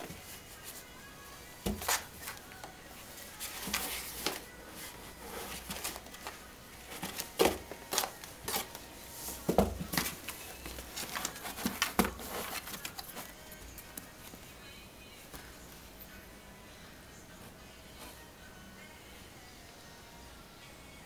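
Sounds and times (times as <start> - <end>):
cat scratching cardboard box: 9.4 - 13.4.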